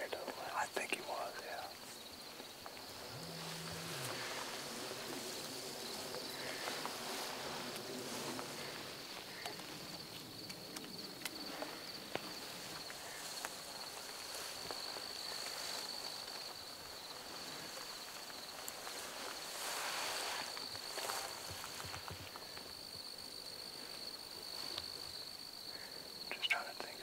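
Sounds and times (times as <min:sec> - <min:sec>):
insects trilling: 0:00.0 - 0:27.0
footsteps in dry grass: 0:01.8 - 0:23.1.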